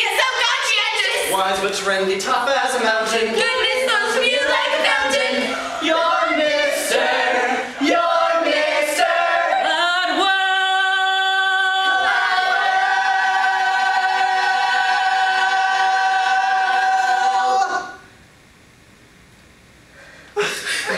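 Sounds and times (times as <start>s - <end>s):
mixed choir singing: 2.5s - 18.0s.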